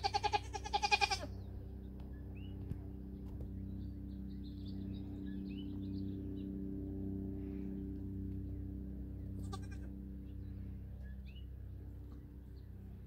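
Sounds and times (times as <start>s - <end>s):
goat bleating: 0.0s - 1.3s, 9.4s - 9.9s.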